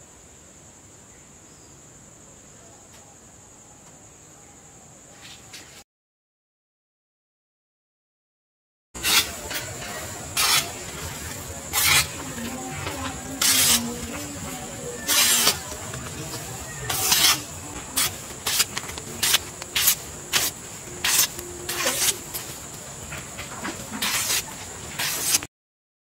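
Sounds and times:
knife slicing paper card: 9.0 - 9.6, 10.4 - 10.8, 11.7 - 12.2, 13.3 - 14.1, 15.0 - 22.5, 24.0 - 25.5.

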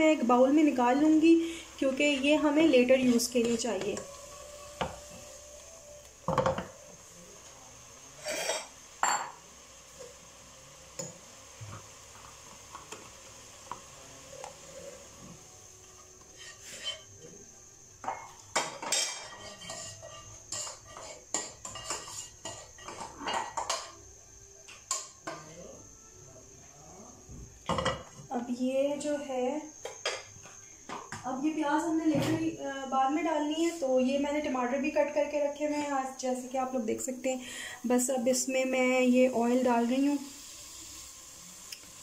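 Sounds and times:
pan knocking: 6.2 - 6.9
spatula scraping a pan: 8.1 - 8.8, 16.0 - 17.3, 18.6 - 23.8.

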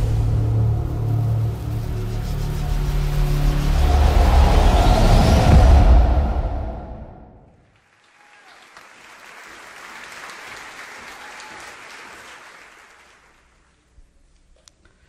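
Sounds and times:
intro music: 0.0 - 7.3
audience applause: 7.5 - 13.8.

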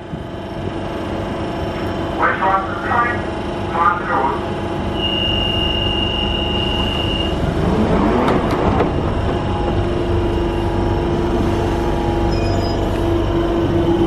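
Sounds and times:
steady motor tone: 2.3 - 14.0
electric train starting: 4.4 - 14.0.

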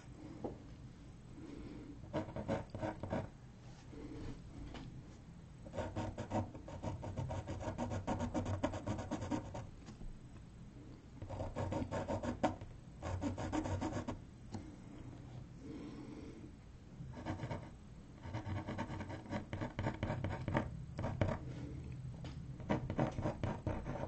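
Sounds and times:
pencil sketching on paper: 5.7 - 9.6, 11.3 - 14.2, 17.1 - 21.4, 22.6 - 24.0.

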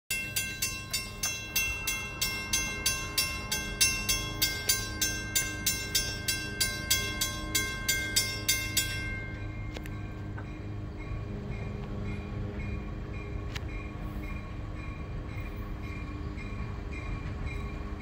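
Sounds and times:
railroad crossing bell ringing: 0.1 - 18.0.

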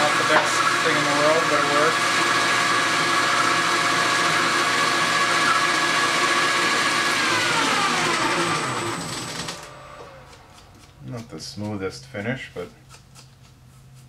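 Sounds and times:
metal lathe whine: 0.0 - 10.3.

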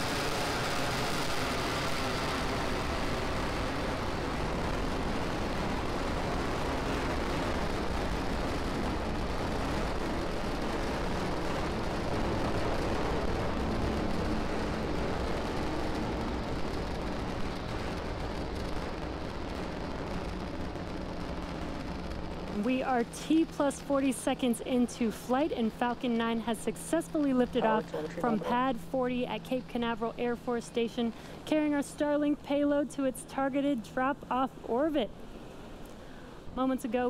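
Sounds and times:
rocket engines rumbling: 0.0 - 37.0.

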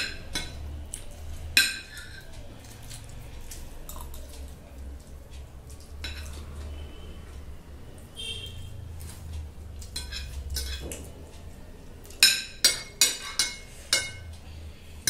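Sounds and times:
cutlery clinking on glass plates: 0.0 - 3.0, 5.8 - 6.6, 9.8 - 11.1, 12.0 - 14.3.

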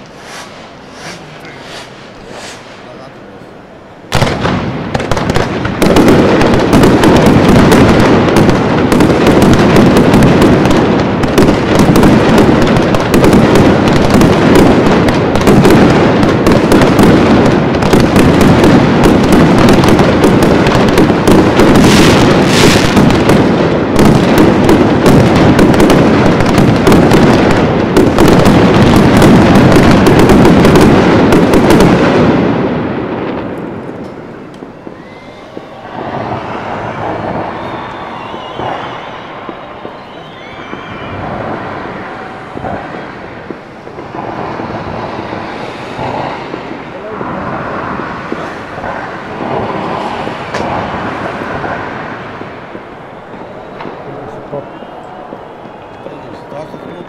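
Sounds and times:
high hiss: 0.0 - 3.8
fireworks exploding: 0.0 - 57.0.

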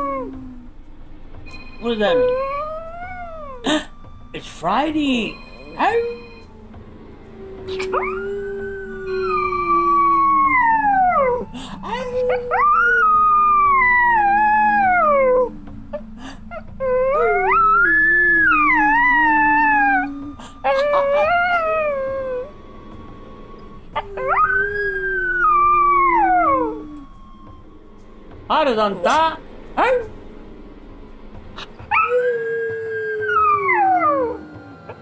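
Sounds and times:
small dog howling: 0.0 - 0.7, 7.3 - 22.6, 23.9 - 27.1, 31.9 - 35.0.

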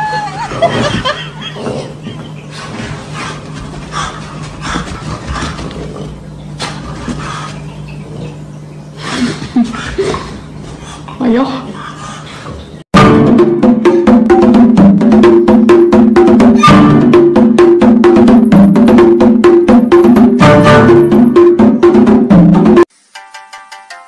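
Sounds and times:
fast clacking percussive music: 13.0 - 24.0.

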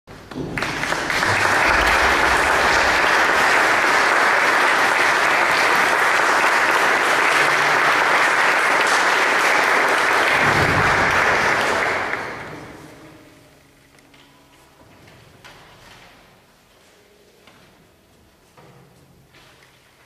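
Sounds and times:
audience applauding: 0.1 - 13.0.

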